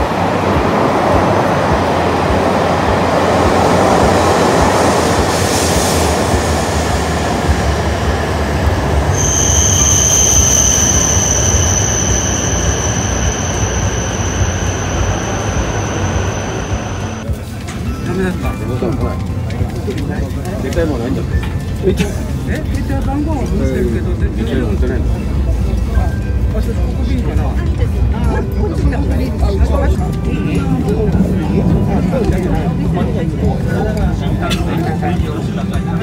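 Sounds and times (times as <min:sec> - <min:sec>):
train rumbling along platform: 0:00.0 - 0:36.0
train brakes squealing: 0:08.5 - 0:17.2.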